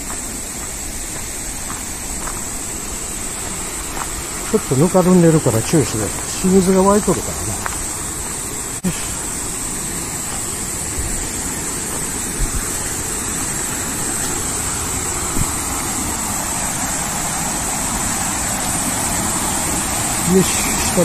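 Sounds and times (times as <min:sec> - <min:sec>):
footsteps on mud: 0:00.0 - 0:04.8, 0:05.9 - 0:08.4, 0:10.2 - 0:12.8
waterfall rushing: 0:00.0 - 0:21.0.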